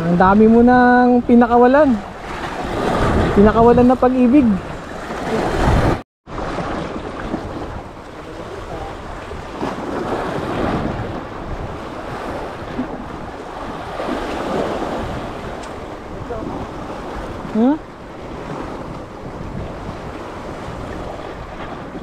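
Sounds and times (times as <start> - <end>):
sea waves washing in: 0.0 - 22.0
wind rumbling on microphone: 0.0 - 22.0.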